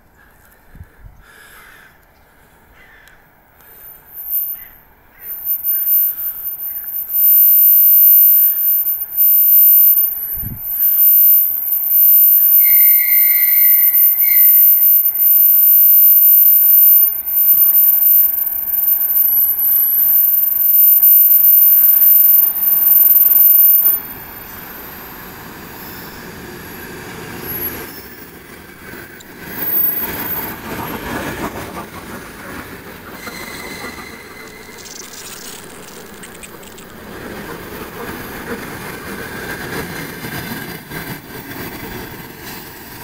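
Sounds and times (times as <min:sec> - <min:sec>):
high-pitched whine: 0:03.8 - 0:26.8, 0:33.0 - 0:38.1
train whistle blasts: 0:04.1 - 0:24.1, 0:33.2 - 0:34.8.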